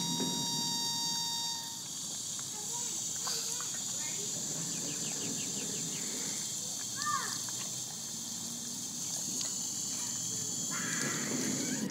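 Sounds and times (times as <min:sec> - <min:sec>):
high insect chorus: 0:00.0 - 0:11.9
dog lapping water: 0:01.8 - 0:10.3.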